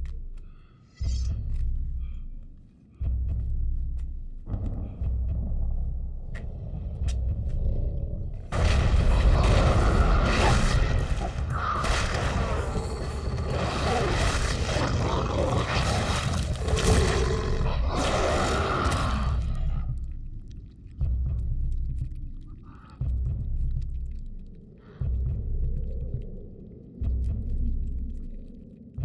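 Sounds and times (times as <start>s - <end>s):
low rumble: 0.0s - 29.0s
monster roaring and shrieking: 9.0s - 19.8s.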